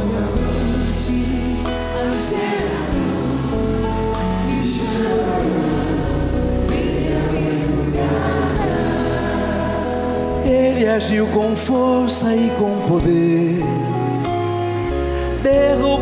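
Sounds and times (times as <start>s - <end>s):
voices singing along: 0.0s - 11.6s
live band playing worship song: 0.0s - 16.0s.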